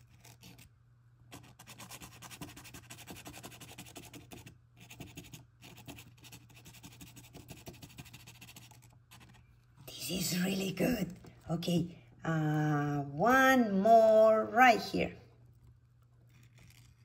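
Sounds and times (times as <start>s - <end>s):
marker scribbling on canvas: 1.3s - 11.0s.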